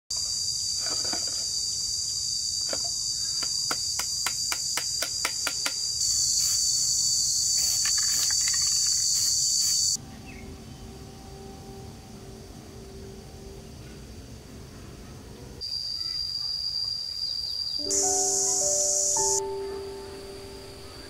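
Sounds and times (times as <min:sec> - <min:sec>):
high-pitched shrill of insects: 0:05.8 - 0:14.2, 0:15.6 - 0:21.0.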